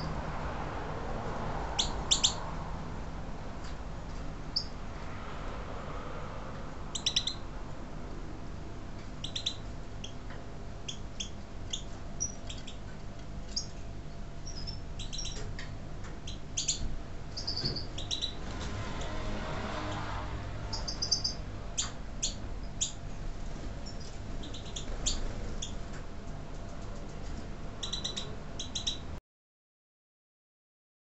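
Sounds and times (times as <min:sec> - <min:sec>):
goldfinches chirping: 0:01.8 - 0:02.4, 0:04.5 - 0:04.8, 0:06.9 - 0:07.4, 0:09.2 - 0:10.2, 0:10.8 - 0:12.9, 0:13.5 - 0:13.8, 0:14.4 - 0:15.4, 0:16.2 - 0:18.4, 0:20.7 - 0:23.0, 0:23.8 - 0:25.8, 0:27.8 - 0:29.1.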